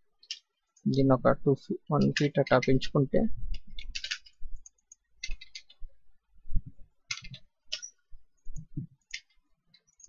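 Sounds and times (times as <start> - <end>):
mouse and keyboard clicking: 3.5 - 5.9, 7.0 - 10.0.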